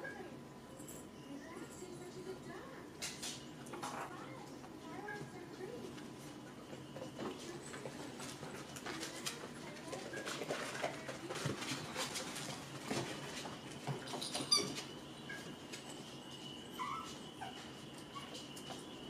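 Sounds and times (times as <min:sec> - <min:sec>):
puppies scampering on mats: 0:03.0 - 0:19.0
puppy squeak: 0:16.7 - 0:17.6.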